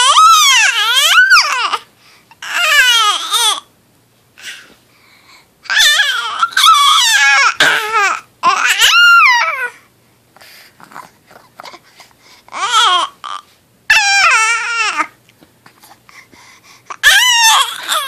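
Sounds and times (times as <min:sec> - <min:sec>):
infant babbling: 0:10.8 - 0:15.2, 0:16.9 - 0:18.0.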